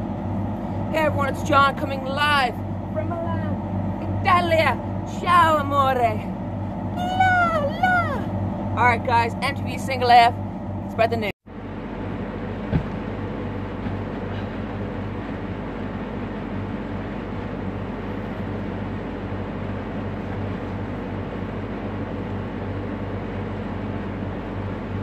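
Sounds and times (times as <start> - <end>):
low hum: 0.0 - 25.0.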